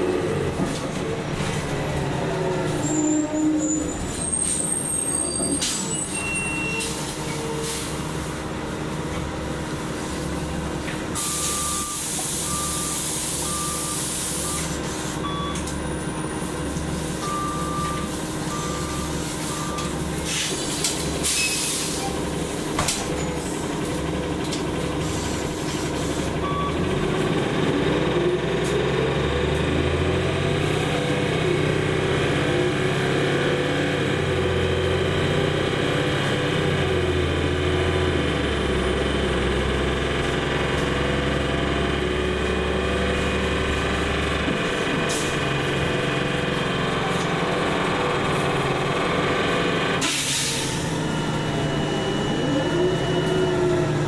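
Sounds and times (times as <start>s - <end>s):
bus engine revving up: 0.0s - 54.0s
air brake hiss: 11.2s - 15.2s, 20.2s - 22.2s, 50.0s - 50.8s
short warning beeps: 11.3s - 15.7s, 17.2s - 19.9s, 50.3s - 54.0s.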